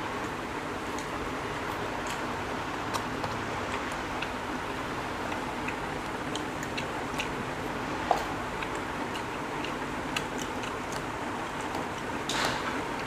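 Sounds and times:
chewing clicks and smacks: 2.9s - 7.5s, 8.1s - 12.2s.

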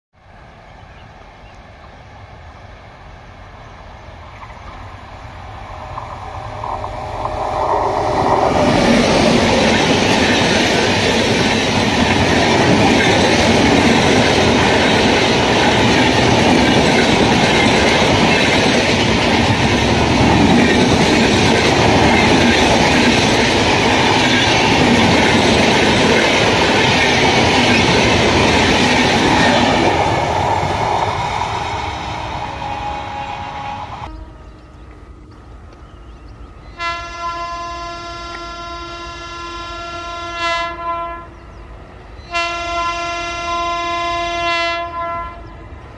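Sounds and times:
train wheels rushing on rails: 0.3s - 37.2s
clickety-clack of coaches: 8.3s - 30.0s.

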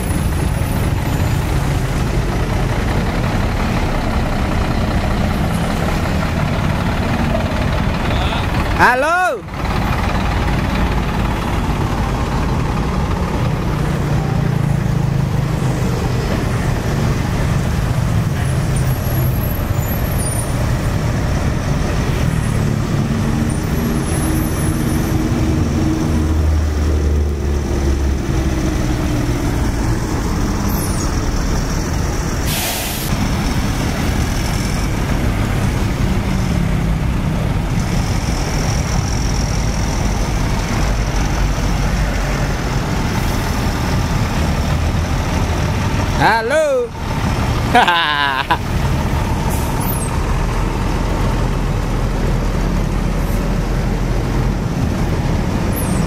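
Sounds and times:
heavy trucks driving past: 0.0s - 56.0s
air brakes hissing: 32.4s - 33.2s, 49.4s - 50.1s.

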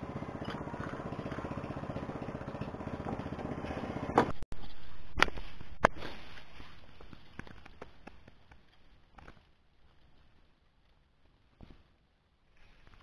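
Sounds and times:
small engine chugging: 0.0s - 4.3s.

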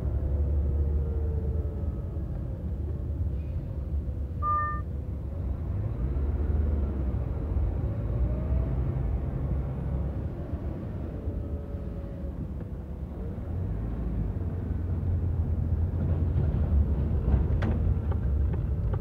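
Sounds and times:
car engine and road rumble: 0.0s - 19.0s
short beep: 4.4s - 4.9s.

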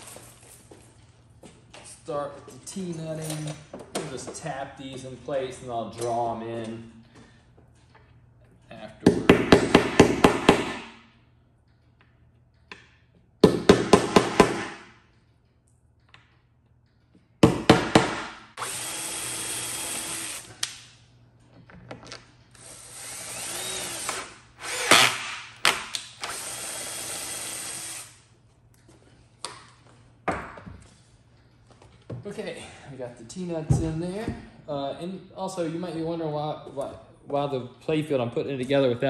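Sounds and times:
cordless drill running: 18.6s - 20.5s, 22.5s - 25.4s, 26.2s - 28.2s.

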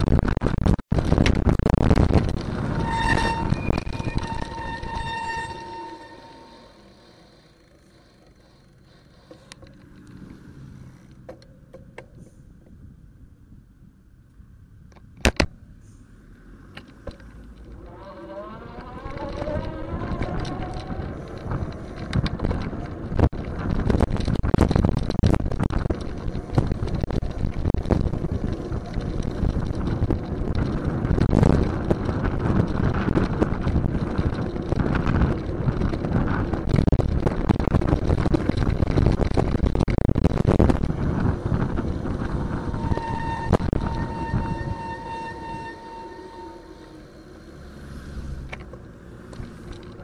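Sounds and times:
bicycle knocks and rattles: 0.0s - 2.8s, 19.1s - 44.2s
wind buffeting microphone: 0.0s - 6.1s, 18.5s - 47.1s
road rumble: 0.0s - 50.0s.

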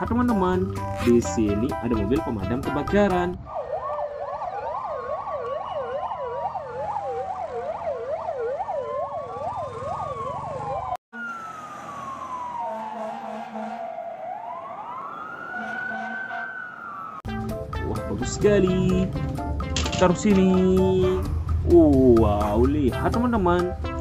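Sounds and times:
fire engine siren wail: 3.4s - 17.3s
fire engine siren yelp: 3.4s - 17.3s.

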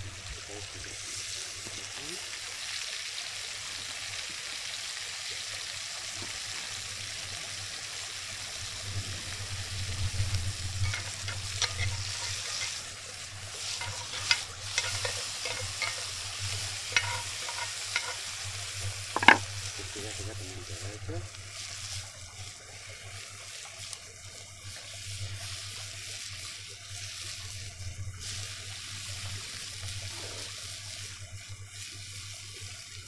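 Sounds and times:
steak sizzling in a pan: 0.0s - 33.0s
utensil scraping a pan: 10.7s - 20.4s.

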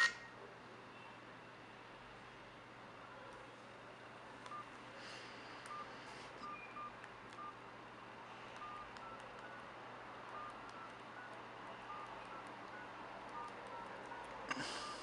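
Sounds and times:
phone keypad beeps: 5.6s - 7.6s, 8.6s - 9.7s, 10.3s - 15.0s.

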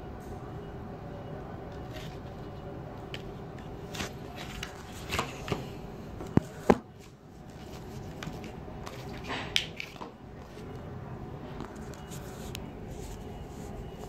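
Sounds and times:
packaging rustling: 3.0s - 5.6s.

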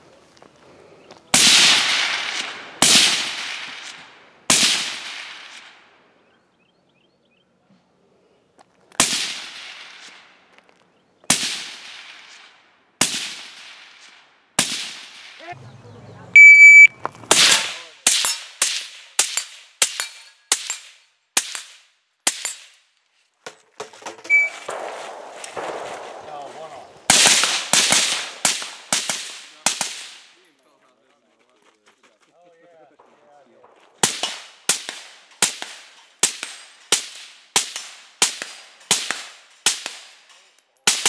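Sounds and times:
suppressed rifle shots: 1.4s - 5.7s, 24.4s - 26.4s.

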